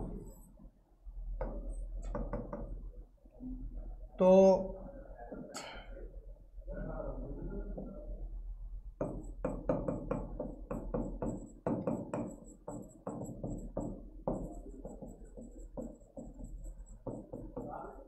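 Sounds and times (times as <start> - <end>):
low electrical hum: 0.0 - 9.5
stylus tapping on board: 1.4 - 2.8, 9.0 - 17.8.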